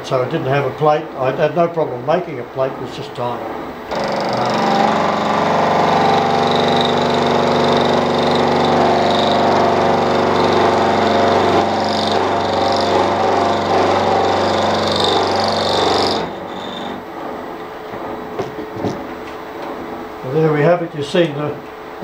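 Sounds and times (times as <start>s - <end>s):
milling machine motor hum: 0.6s - 20.6s
cutter whine: 3.9s - 17.1s.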